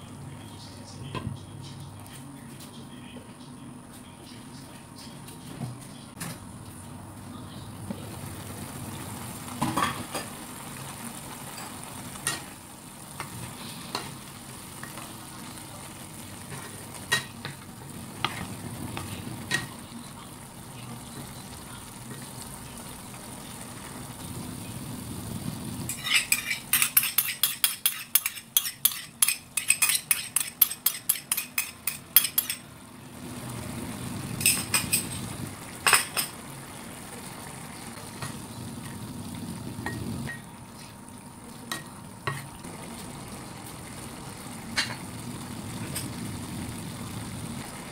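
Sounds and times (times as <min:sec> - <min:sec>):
food sizzling in a pan: 0:06.2 - 0:47.9
spatula knocking and scraping pan: 0:25.9 - 0:32.6.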